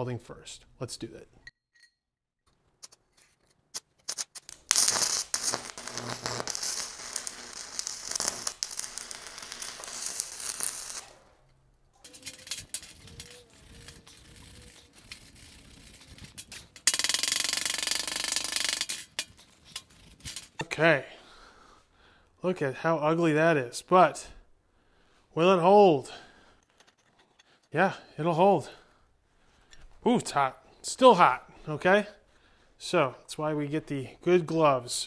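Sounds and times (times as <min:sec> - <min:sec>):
welding arc crackling and hissing: 0:04.1 - 0:11.3, 0:12.0 - 0:20.6.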